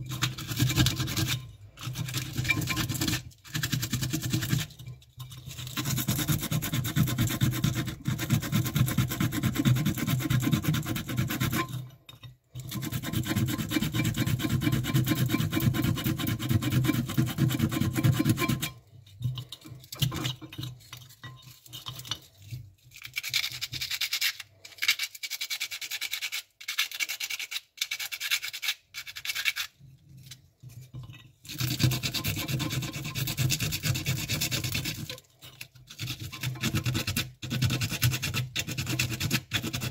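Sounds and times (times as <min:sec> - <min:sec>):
scrubbing metal part: 0:00.0 - 0:24.4.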